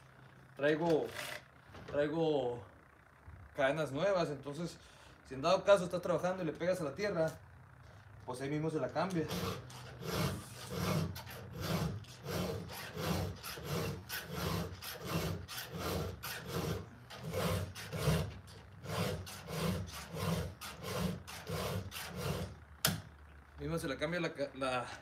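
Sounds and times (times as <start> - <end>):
file rasping on chainsaw chain: 9.1 - 22.5.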